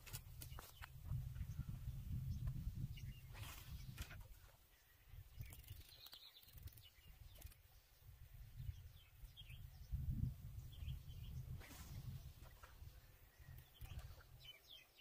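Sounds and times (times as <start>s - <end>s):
high bird chirps: 5.4s - 7.6s.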